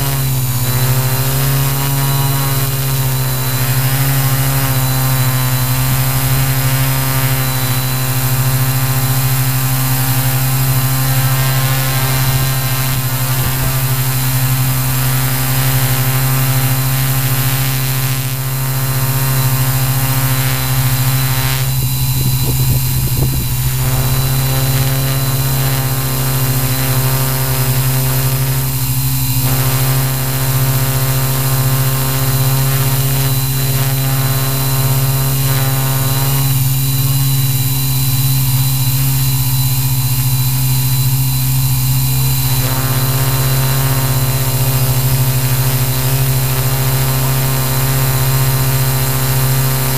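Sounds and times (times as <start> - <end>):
quadcopter motors buzzing: 0.0 - 49.9.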